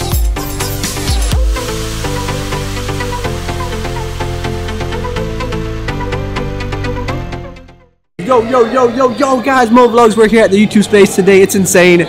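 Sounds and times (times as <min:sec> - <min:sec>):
electronic dance music: 0:00.0 - 0:07.5.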